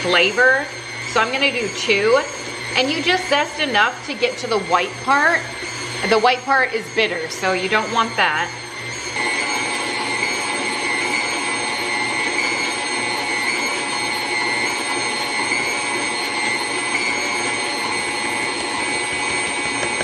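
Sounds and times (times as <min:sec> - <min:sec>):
stand mixer motor whine: 0:00.0 - 0:20.0.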